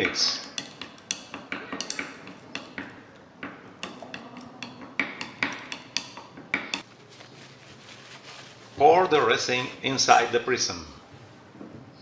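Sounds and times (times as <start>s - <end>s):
stirrer clinking on glass beaker: 0.0s - 6.8s.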